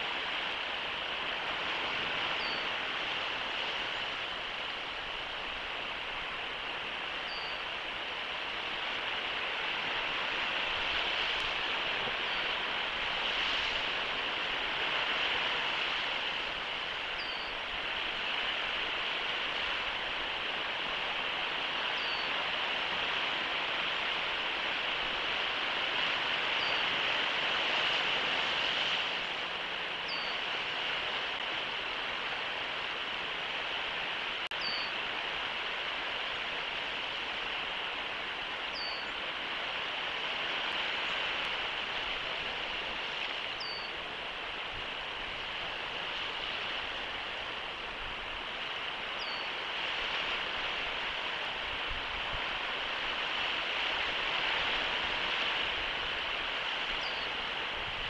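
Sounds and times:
rushing outdoor noise: 0:00.0 - 0:58.0.

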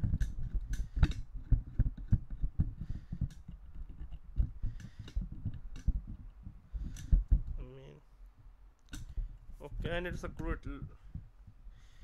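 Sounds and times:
metal clamp clicks and thumps: 0:00.0 - 0:07.6, 0:08.8 - 0:09.3.

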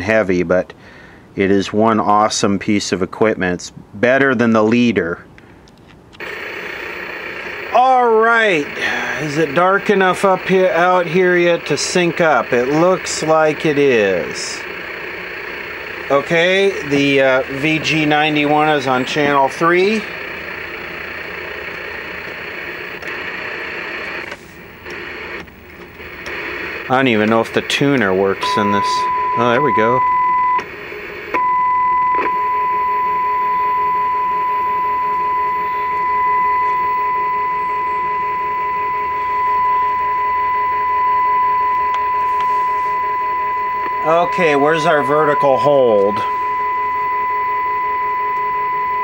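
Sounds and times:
steady test tone: 0:06.2 - 0:25.4, 0:26.0 - 0:49.0
television static hiss: 0:06.2 - 0:31.4, 0:43.8 - 0:46.4.

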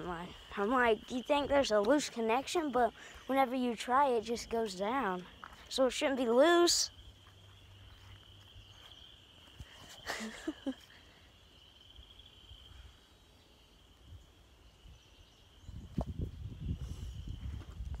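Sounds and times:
footsteps on grass and dry leaves: 0:04.9 - 0:06.0, 0:07.0 - 0:10.1.

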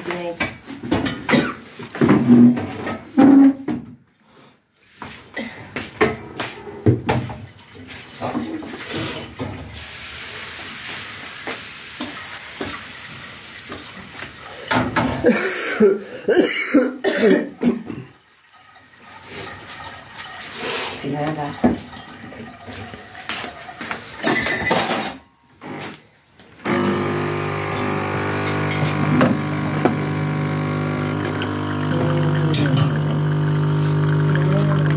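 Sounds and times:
kitchen knocks and clatter: 0:00.0 - 0:04.0, 0:14.6 - 0:15.3, 0:23.4 - 0:25.2
person coughing: 0:01.3 - 0:01.7, 0:15.2 - 0:18.1
batter sizzling in frying pan: 0:09.7 - 0:14.4.

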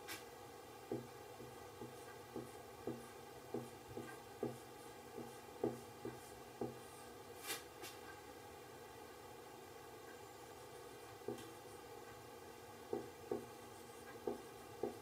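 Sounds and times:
marker tapping on whiteboard: 0:00.9 - 0:06.9, 0:11.2 - 0:11.6, 0:12.9 - 0:15.0.

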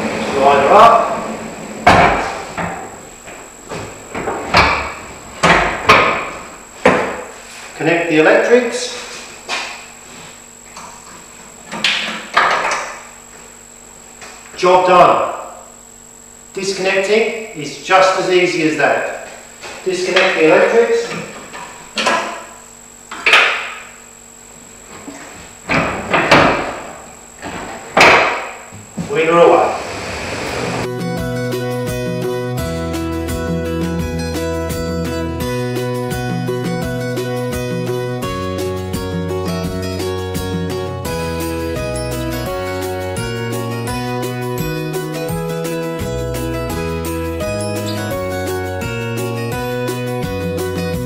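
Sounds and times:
sharp clunks and knocks: 0:01.8 - 0:07.3.

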